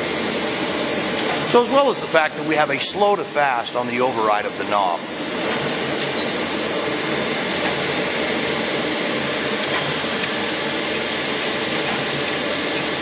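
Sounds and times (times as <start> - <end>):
surface grinder running: 0.1 - 13.0.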